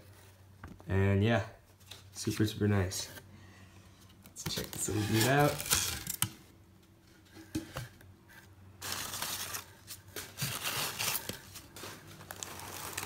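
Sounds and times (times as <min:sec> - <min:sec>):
newspaper rustling and crinkling: 0:04.5 - 0:06.2, 0:08.8 - 0:13.0.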